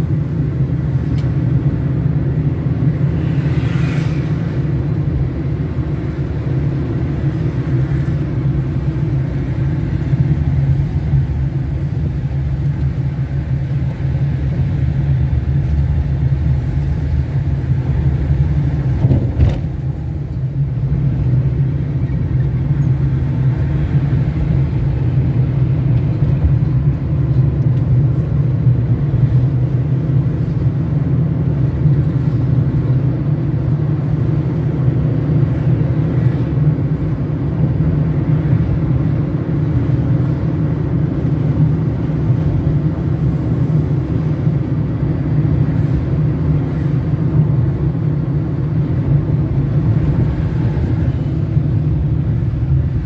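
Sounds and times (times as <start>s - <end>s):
car engine and tyres rumbling: 0.0s - 53.0s.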